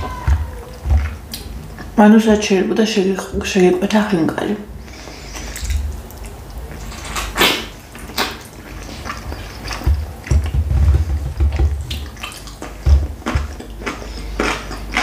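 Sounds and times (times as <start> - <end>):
chewing and mouth smacks: 5.1 - 10.5, 11.8 - 15.0.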